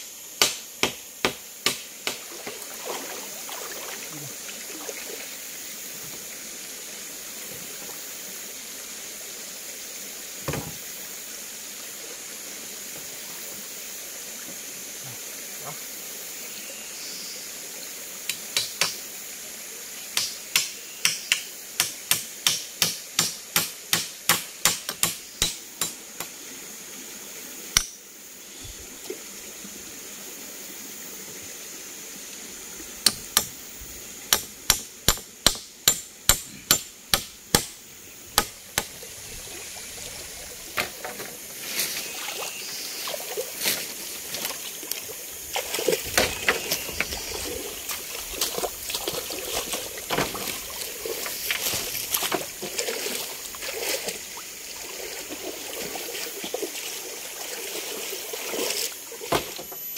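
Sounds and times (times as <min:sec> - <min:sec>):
mountain stream rushing: 0:01.6 - 0:16.4, 0:37.8 - 0:59.9.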